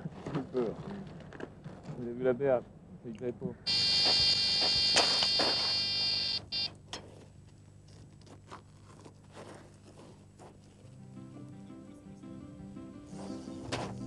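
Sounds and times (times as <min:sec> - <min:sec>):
bite alarm high-pitched tone: 0:03.7 - 0:06.7
short electronic beeps: 0:03.7 - 0:06.7.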